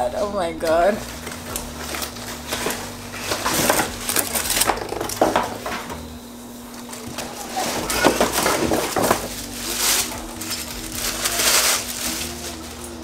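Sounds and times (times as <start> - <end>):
packaging rustling and crinkling: 0.6 - 6.1, 6.8 - 13.0
pans clinking and knocking: 3.3 - 6.0, 7.6 - 9.4.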